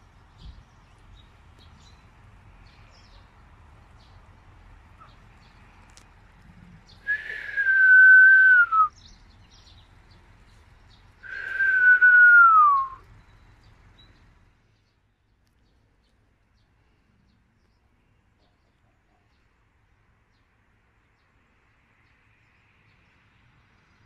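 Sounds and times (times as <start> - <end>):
long whistled notes: 7.1 - 8.9, 11.2 - 13.0.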